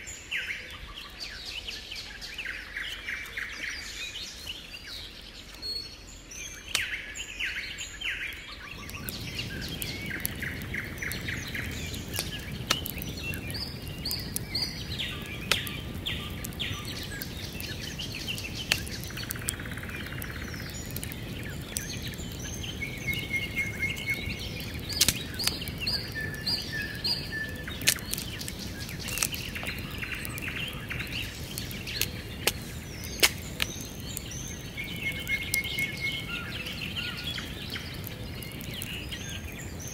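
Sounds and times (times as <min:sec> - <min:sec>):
songbirds singing: 0:00.0 - 0:39.9
dry sticks clicking and snapping: 0:06.7 - 0:07.0, 0:08.2 - 0:39.9.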